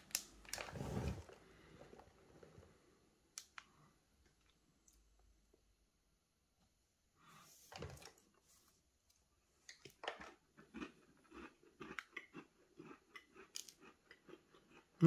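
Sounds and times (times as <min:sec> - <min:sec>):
person chewing cookie: 0:09.7 - 0:15.0.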